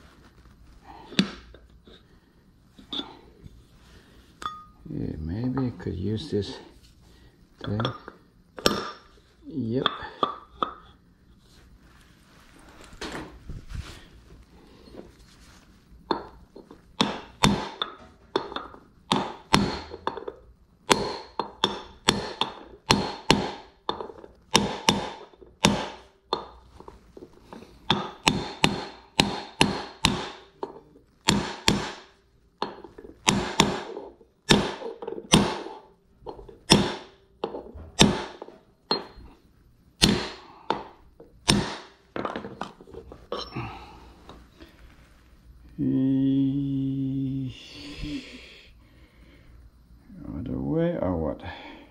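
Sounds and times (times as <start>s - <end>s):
hammer striking metal: 17.0s - 20.3s, 20.9s - 26.5s, 27.9s - 35.8s, 36.6s - 37.2s, 38.0s - 39.2s, 40.0s - 42.0s.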